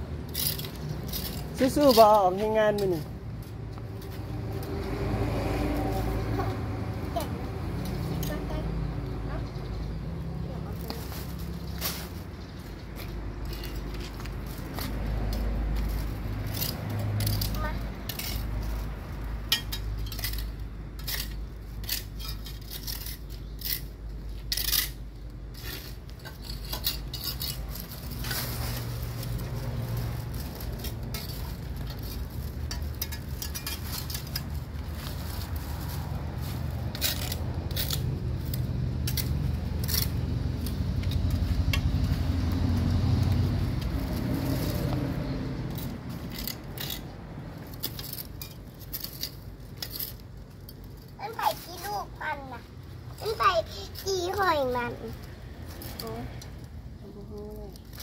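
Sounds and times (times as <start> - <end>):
metal tongs scraping concrete: 0.2 - 3.2, 13.0 - 29.4, 30.6 - 35.2, 36.8 - 42.2, 45.6 - 52.4.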